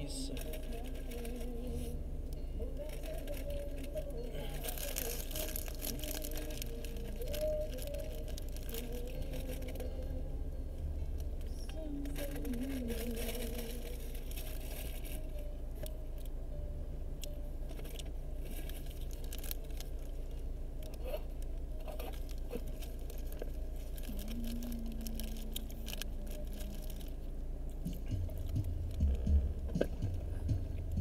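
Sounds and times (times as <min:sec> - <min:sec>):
steady low hum: 0:00.0 - 0:31.0
food wrapping crinkling: 0:00.1 - 0:02.0, 0:02.7 - 0:10.0, 0:11.7 - 0:16.3, 0:17.7 - 0:27.4.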